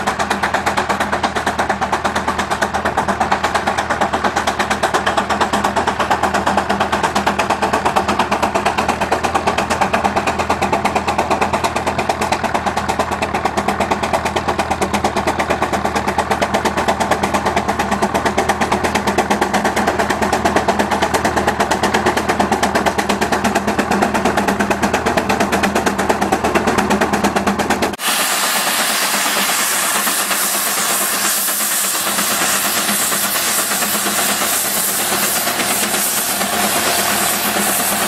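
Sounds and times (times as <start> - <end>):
steam engine exhaust chuffing: 0.0 - 38.0
steam hissing: 28.0 - 38.0.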